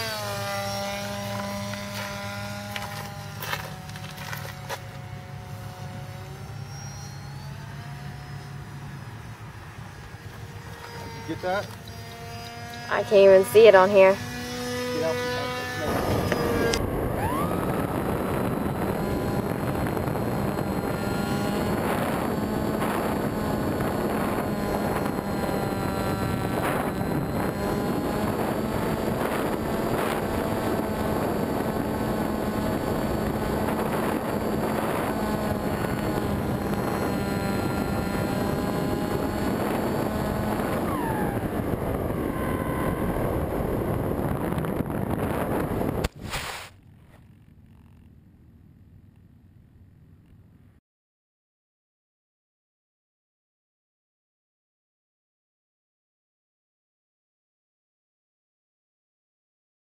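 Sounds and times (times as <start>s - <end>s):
electric motor whine: 0.0s - 46.2s
steady low hum: 0.0s - 50.8s
wind on microphone: 10.0s - 46.7s.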